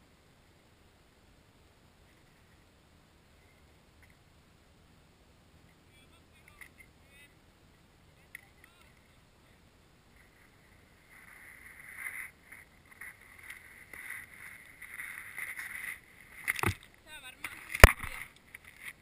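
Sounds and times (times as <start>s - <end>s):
skis scraping and crunching in snow: 10.1s - 16.8s.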